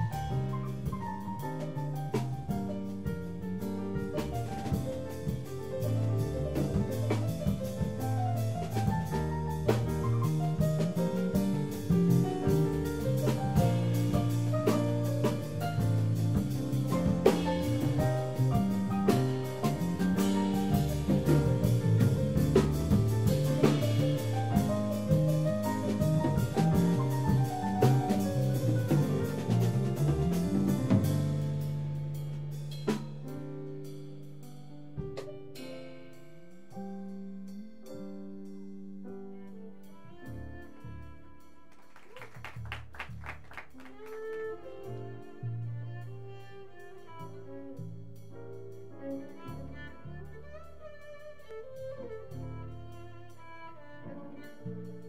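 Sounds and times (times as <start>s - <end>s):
cello: 0.0s - 31.6s, 37.3s - 42.2s, 43.8s - 55.0s
drum kit beat: 0.0s - 39.7s, 41.8s - 55.0s
piano: 0.0s - 55.0s
electric bass line: 8.6s - 31.9s
violin: 39.2s - 42.2s, 43.8s - 55.0s.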